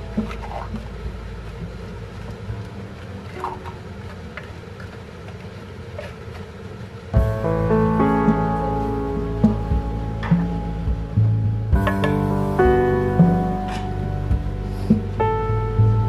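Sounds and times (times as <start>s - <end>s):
gravy simmering low rumble: 0.0s - 16.0s
background music: 7.2s - 16.0s.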